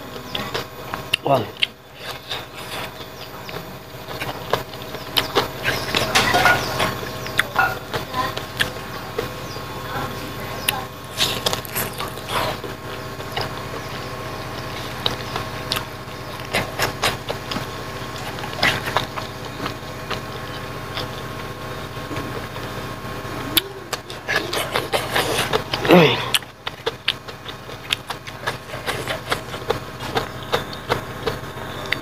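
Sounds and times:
person chewing and mouth-smacking: 0:00.0 - 0:32.0
steady low hum: 0:00.0 - 0:32.0.

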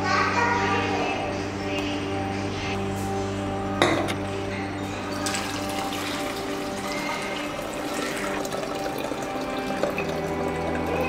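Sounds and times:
tea pouring into glass jar: 0:05.1 - 0:11.0.

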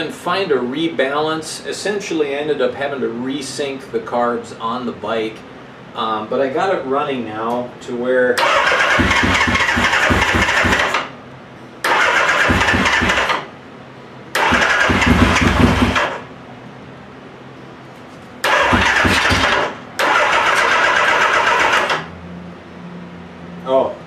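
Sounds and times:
motorcycle engine cranking on starter: 0:08.4 - 0:11.1, 0:11.8 - 0:13.5, 0:14.4 - 0:16.2, 0:18.4 - 0:22.1.

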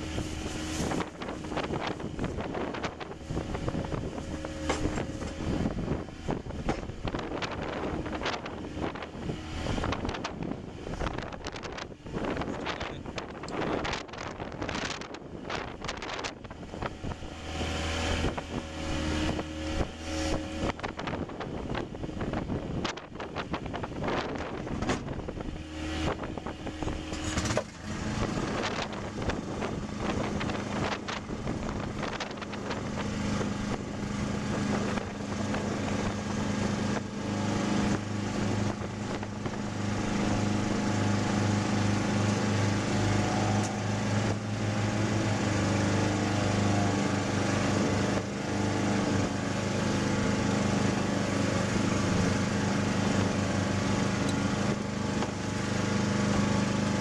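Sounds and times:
boat engine humming: 0:00.0 - 0:57.0
wind buffeting microphone: 0:00.0 - 0:57.0.

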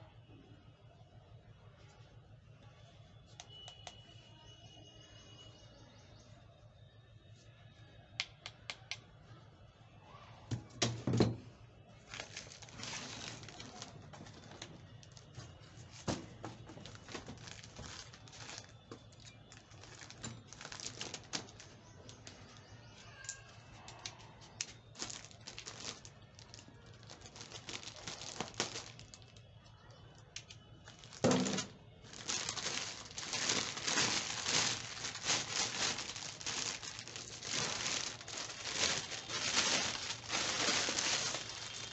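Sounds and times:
items knocking when set down: 0:10.5 - 0:11.5, 0:31.2 - 0:31.8
cardboard and plastic rustling: 0:10.6 - 0:22.8, 0:23.8 - 0:41.9
plastic wrap crinkling: 0:12.0 - 0:41.9.

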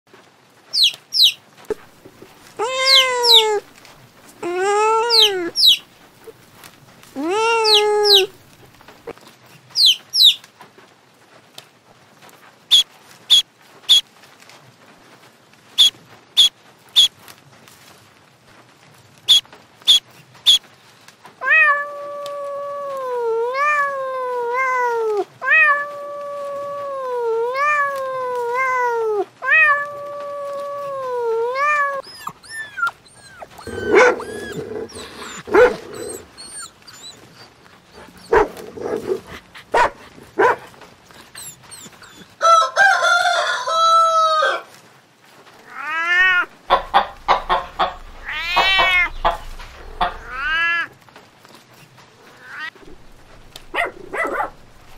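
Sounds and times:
chicks peeping: 0:00.8 - 0:01.8, 0:05.1 - 0:05.8, 0:09.8 - 0:10.4, 0:46.7 - 0:50.5
cat meowing: 0:00.8 - 0:06.4, 0:07.1 - 0:09.2, 0:21.4 - 0:42.4, 0:45.6 - 0:51.0, 0:52.2 - 0:54.9
dogs barking: 0:32.0 - 0:42.2, 0:46.5 - 0:50.6, 0:52.8 - 0:54.9.

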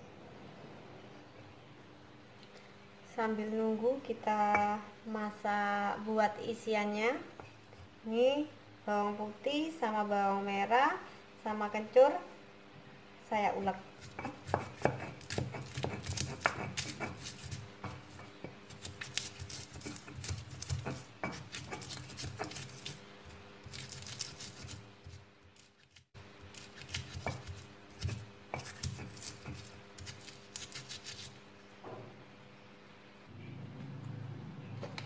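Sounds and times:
pestle grinding in stone mortar: 0:14.0 - 0:23.0, 0:23.6 - 0:31.3.

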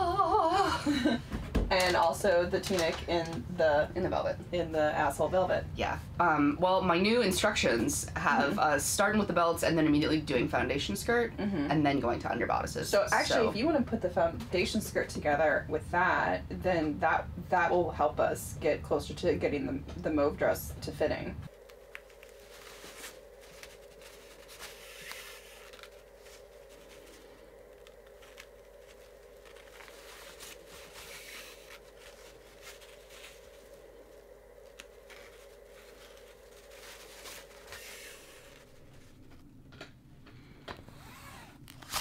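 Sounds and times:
low hum: 0:15.2 - 0:42.0
needle and thread through fabric: 0:21.5 - 0:39.1.

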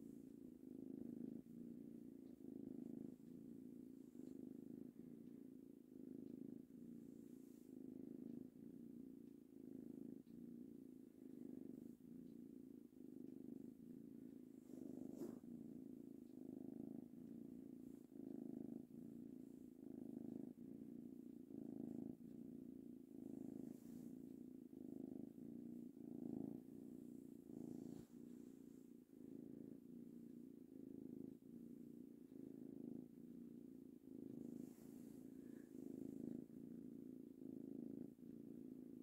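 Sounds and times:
kitten purring: 0:00.0 - 0:39.0.

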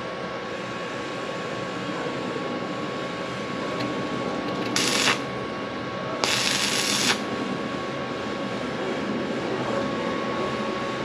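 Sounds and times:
steady background hum: 0:00.0 - 0:11.0
arc welding hiss and crackle: 0:04.7 - 0:05.3, 0:06.2 - 0:07.3.

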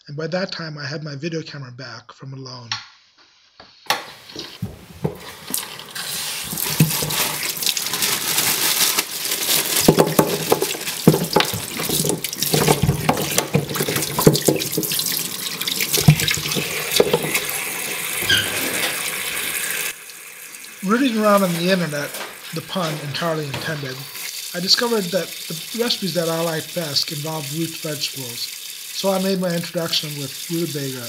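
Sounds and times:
tap water splashing in sink: 0:03.9 - 0:20.0, 0:20.7 - 0:31.0.

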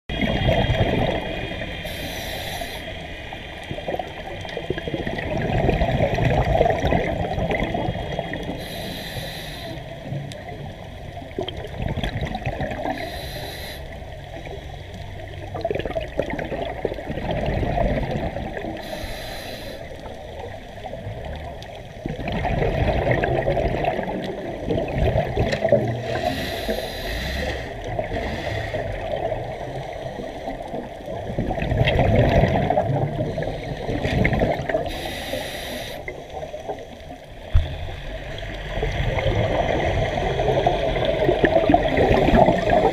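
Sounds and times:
gurgle of exhaled bubbles: 0:00.1 - 0:02.3, 0:03.4 - 0:08.7, 0:10.0 - 0:13.2, 0:15.2 - 0:19.0, 0:20.0 - 0:26.5, 0:27.4 - 0:35.2, 0:35.9 - 0:42.9
hissing regulator inhalations: 0:01.8 - 0:03.0, 0:08.6 - 0:10.0, 0:12.9 - 0:14.8, 0:18.8 - 0:20.2, 0:26.0 - 0:29.0, 0:34.8 - 0:38.2.

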